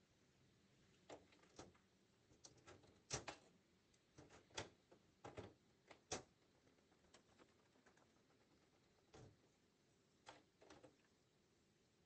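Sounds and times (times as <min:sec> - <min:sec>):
faint sharp clicks and taps: 0:00.9 - 0:09.6.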